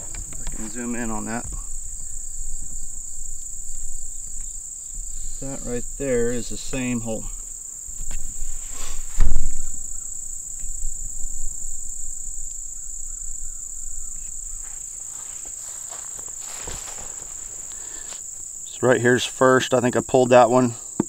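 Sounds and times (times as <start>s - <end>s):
knocks and rustles: 0.0s - 5.2s, 7.9s - 9.9s, 14.2s - 17.7s
insects droning: 0.0s - 21.0s
loud thump: 8.0s - 9.8s.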